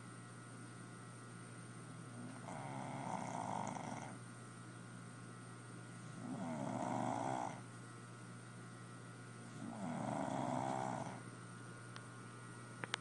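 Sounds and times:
air conditioner hum: 0.0s - 13.0s
dog snoring: 1.9s - 4.2s, 6.0s - 7.7s, 9.4s - 11.2s.

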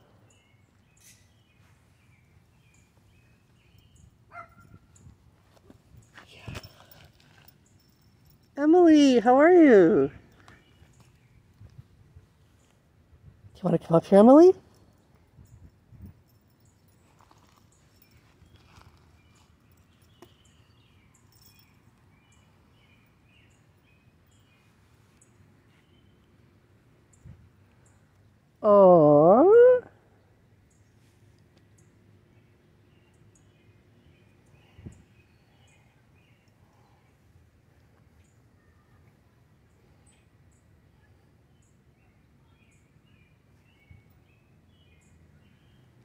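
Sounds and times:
distant birds chirping: 0.0s - 5.2s, 16.3s - 28.5s.

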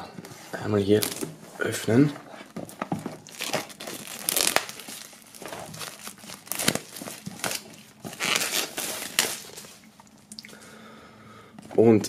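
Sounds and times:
plastic film crinkling: 0.8s - 9.9s.

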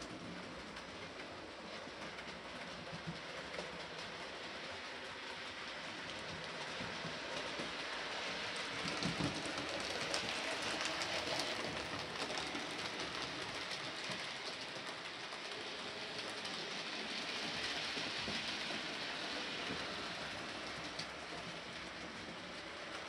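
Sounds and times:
model train rolling rattle: 0.0s - 23.0s
wheels clicking: 0.0s - 23.0s.

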